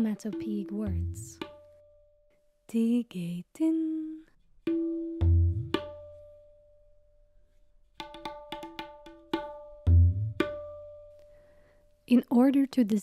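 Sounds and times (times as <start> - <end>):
ringing tabla strokes: 0.0 - 2.4, 4.7 - 6.9, 8.0 - 11.3.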